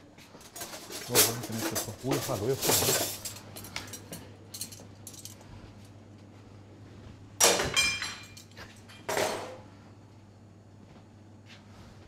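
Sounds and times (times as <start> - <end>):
crockery clinking: 7.4 - 9.6.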